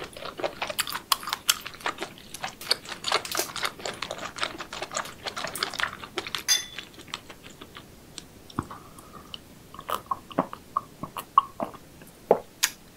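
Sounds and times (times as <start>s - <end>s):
person chewing crunchy food: 0.0s - 11.9s.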